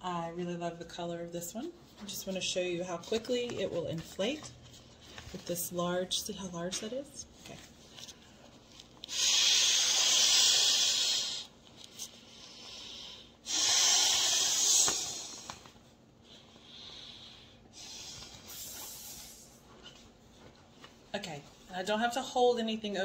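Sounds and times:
person blowing into pillow valve: 9.1s - 11.6s, 12.7s - 15.6s.

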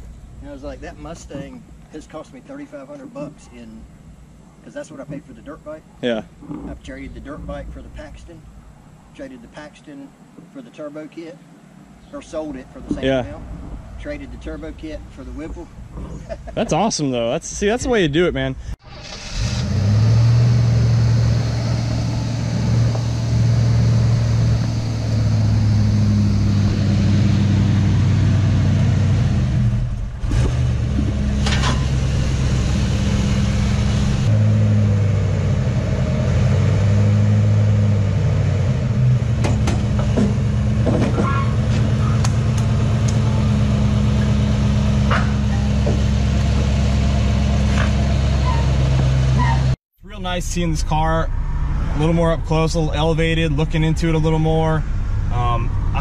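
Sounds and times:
car engine idling: 18.8s - 35.8s, 38.6s - 56.0s
sharp knocks: 39.4s - 42.7s.

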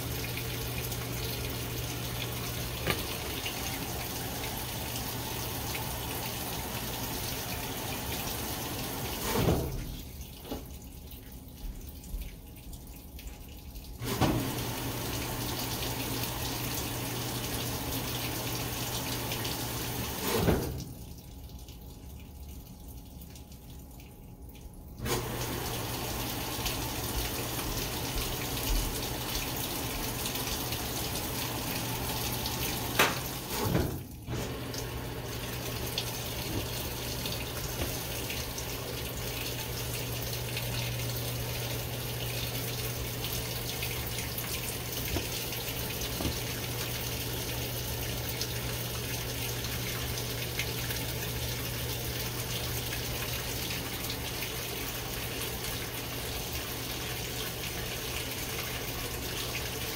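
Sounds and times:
water rushing into washer drum: 0.0s - 23.8s, 24.9s - 59.9s
washer click: 2.8s - 3.8s, 32.7s - 38.7s.

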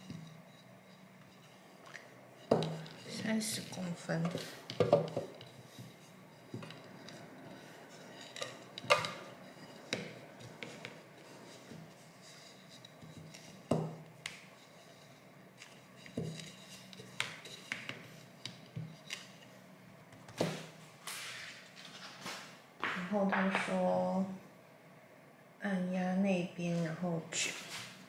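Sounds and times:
rolling pin knocking on countertop: 2.5s - 3.3s, 4.7s - 5.4s, 13.7s - 14.0s.

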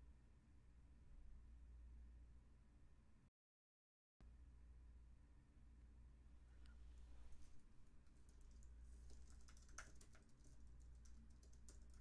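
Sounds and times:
typing on a keyboard: 8.0s - 12.0s.

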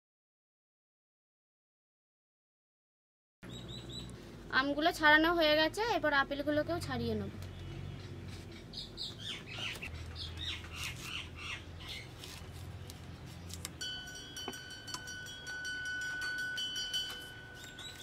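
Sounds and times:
birds chirping and squawking: 3.4s - 4.3s, 7.4s - 13.5s, 17.5s - 18.0s.

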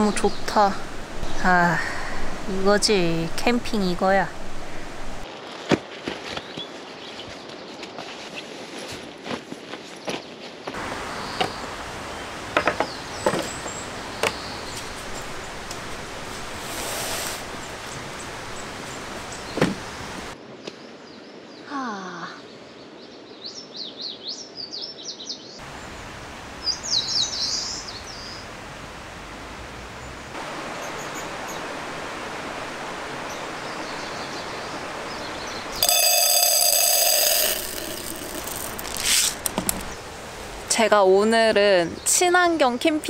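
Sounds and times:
outdoor background noise: 0.0s - 43.0s
loud buzzing tone: 35.8s - 39.1s.

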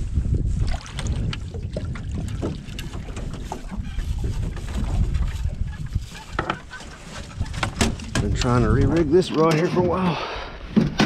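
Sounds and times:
wind buffeting microphone: 0.0s - 10.0s
knocks and clatters of net: 6.1s - 9.6s.

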